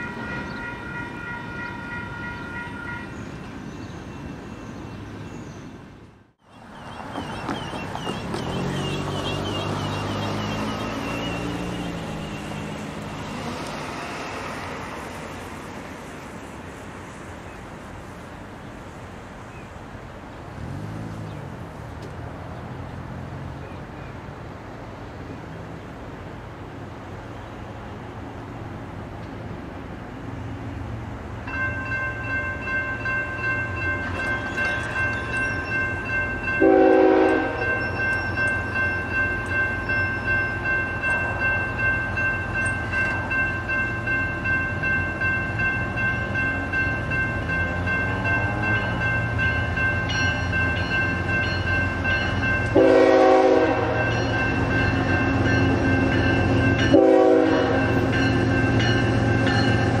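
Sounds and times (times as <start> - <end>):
crossing signal bell ringing: 0.0 - 4.5, 31.4 - 60.0
locomotive air horn blasts: 36.6 - 37.8, 52.7 - 54.3, 56.9 - 58.1.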